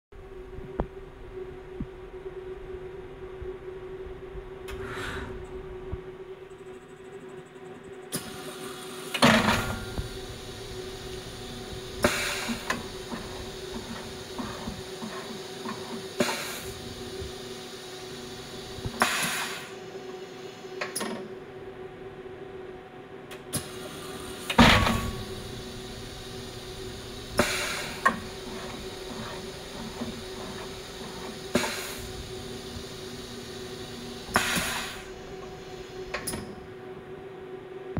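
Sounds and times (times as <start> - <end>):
machine steady hum: 0.1 - 37.9
hissing air blasts: 8.2 - 19.8, 23.6 - 36.3
tool changer clunks and bangs: 24.6 - 25.4.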